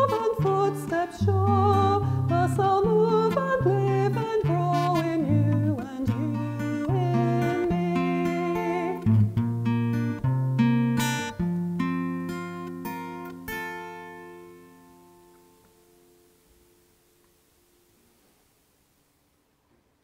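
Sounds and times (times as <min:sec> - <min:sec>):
person singing with vibrato: 0:00.0 - 0:09.2
acoustic guitar playing: 0:00.0 - 0:19.4.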